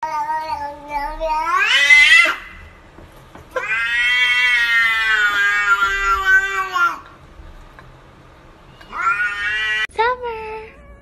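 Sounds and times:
cat meowing: 0.0 - 2.6, 3.6 - 7.0, 8.8 - 9.9, 10.7 - 11.0.

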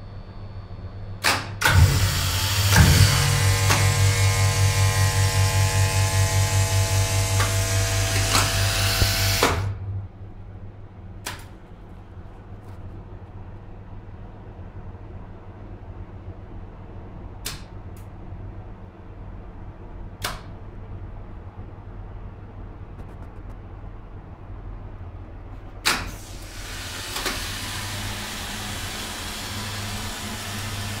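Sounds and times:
hydraulic pump motor humming: 1.6 - 9.9, 26.2 - 31.0
low hum: 1.9 - 20.0, 20.6 - 25.8
sharp click: 11.2 - 11.5, 17.4 - 18.1, 20.2 - 20.5, 22.9 - 23.6, 25.8 - 26.1
hiss of hydraulic oil flowing: 26.1 - 31.0.

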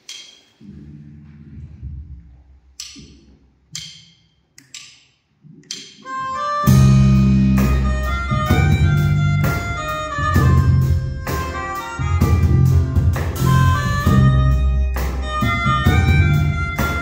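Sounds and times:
drumsticks clicking together: 0.0 - 0.5, 2.8 - 6.1
band playing: 6.0 - 17.0.

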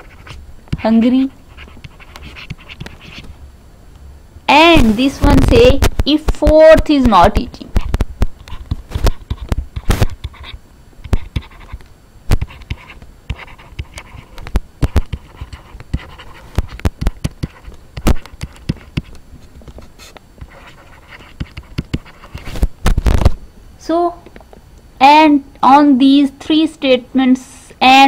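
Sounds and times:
stylus tapping on tablet: 11.0 - 19.2, 20.4 - 22.5.

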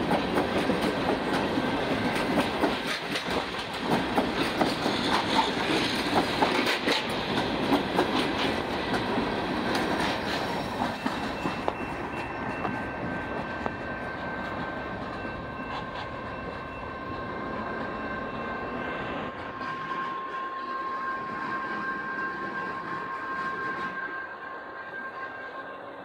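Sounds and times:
freight train wheels clicking: 0.0 - 18.0.

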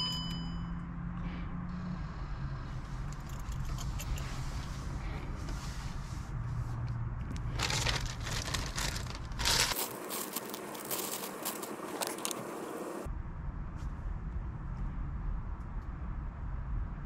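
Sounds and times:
plastic bag crinkling: 7.5 - 12.7.

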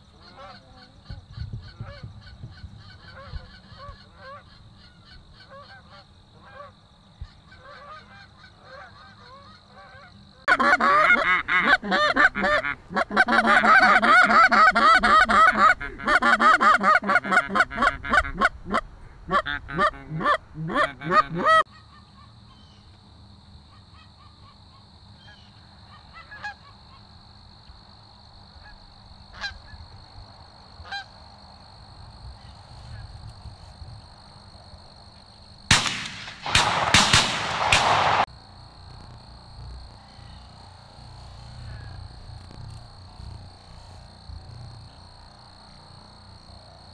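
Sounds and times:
geese honking and clucking: 0.1 - 22.8, 23.7 - 27.1, 28.6 - 29.8, 30.8 - 31.2.

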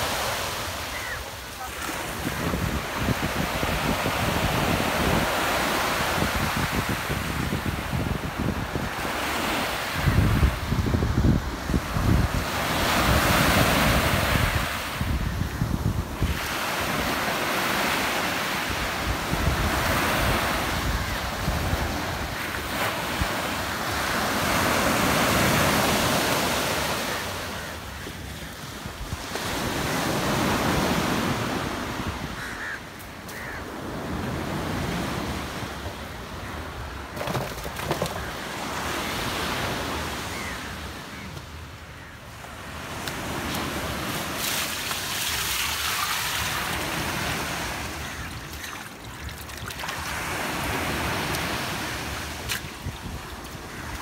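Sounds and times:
sea waves breaking on beach: 0.0 - 35.9, 42.4 - 54.0.

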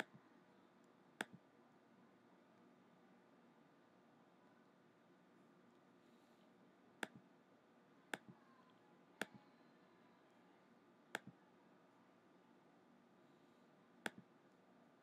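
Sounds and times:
mouse button clicks: 1.2 - 1.4, 9.2 - 9.4, 11.1 - 11.3, 14.0 - 14.2.

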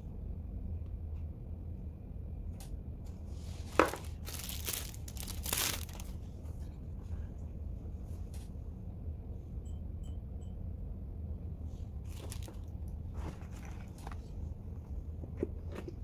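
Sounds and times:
steady low hum: 0.0 - 16.0
plastic clatters and rustles: 3.7 - 6.1, 12.1 - 14.3.

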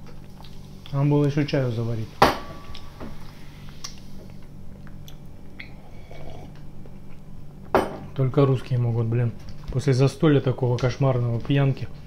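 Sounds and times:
quiet chewing: 0.0 - 1.0, 3.6 - 7.3
low hum: 0.0 - 12.0.

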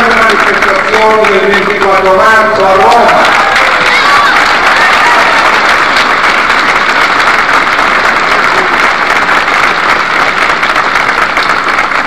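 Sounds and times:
large crowd applauding: 0.0 - 12.0.

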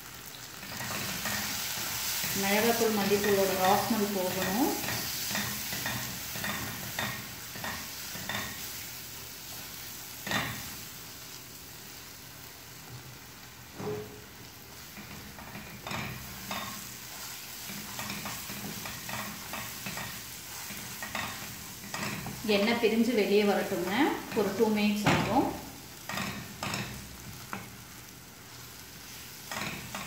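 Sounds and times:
soft sizzle of frying: 0.0 - 30.0
wooden spatula scraping a pan: 13.8 - 22.8.

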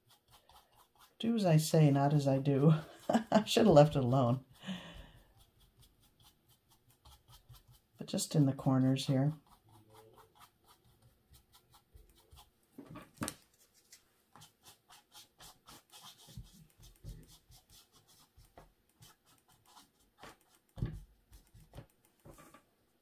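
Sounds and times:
paintbrush scratching on canvas: 0.0 - 22.4.

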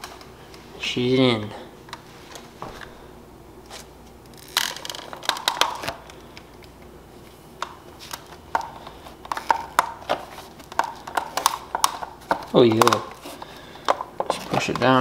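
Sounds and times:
plastic clicks and creaks: 4.2 - 6.8, 7.6 - 13.2.

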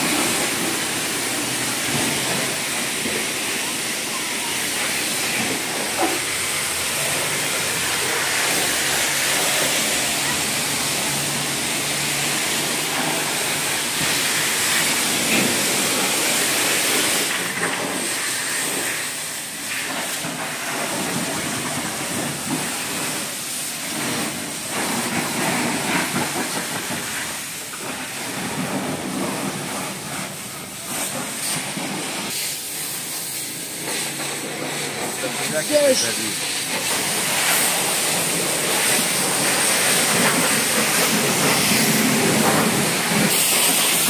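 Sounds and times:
loud steady hiss: 0.0 - 44.0.

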